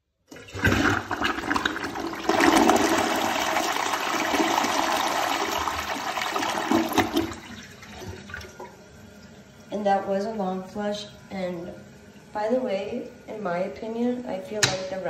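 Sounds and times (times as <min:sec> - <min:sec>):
toilet flushing: 0:00.3 - 0:09.8.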